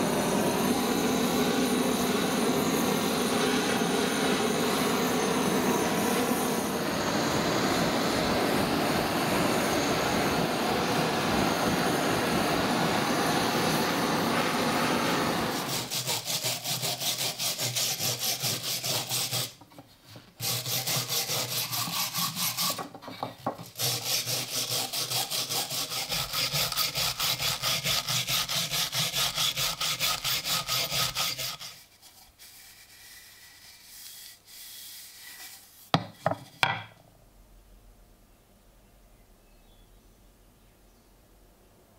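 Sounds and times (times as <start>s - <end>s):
torch flame hissing: 0.0s - 19.6s
wire brush scrubbing wood: 15.5s - 23.0s, 23.6s - 36.7s.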